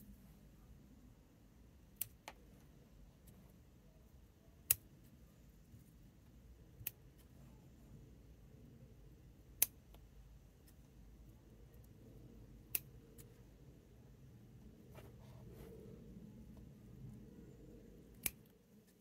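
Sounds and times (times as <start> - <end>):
scissors snipping twigs: 6.8 - 7.3, 12.6 - 13.3, 18.0 - 19.0.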